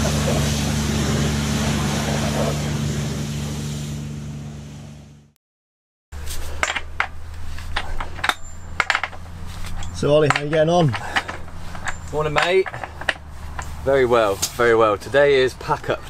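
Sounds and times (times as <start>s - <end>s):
water jet hissing: 0.0s - 4.1s
pressure washer motor humming: 0.0s - 5.2s, 6.2s - 14.9s
metal tools clinking: 6.2s - 14.6s.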